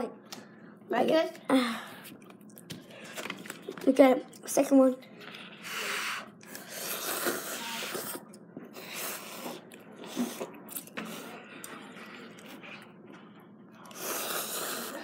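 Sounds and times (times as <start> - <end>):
child slurping noodles: 5.4 - 10.5, 13.9 - 15.0.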